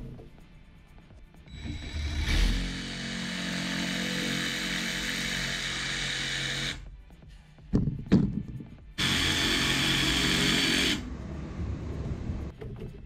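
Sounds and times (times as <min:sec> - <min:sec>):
jigsaw cutting foam panel: 0:01.8 - 0:06.8, 0:09.0 - 0:11.0.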